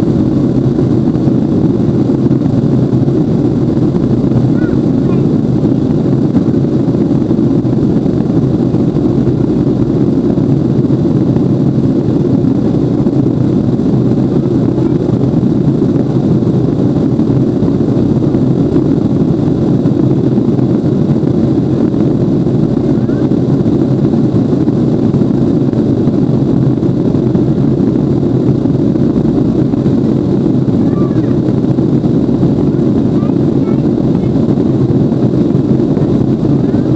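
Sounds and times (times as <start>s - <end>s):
airliner cabin engine rumble: 0.0s - 36.9s.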